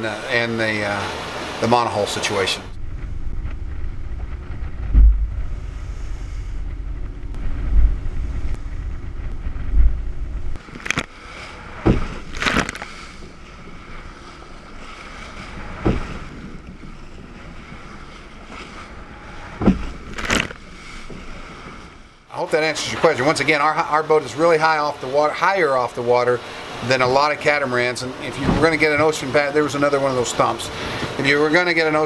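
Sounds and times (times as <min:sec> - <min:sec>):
waves slapping against hull: 0:00.0 - 0:32.0
wind buffeting microphone: 0:02.7 - 0:22.0.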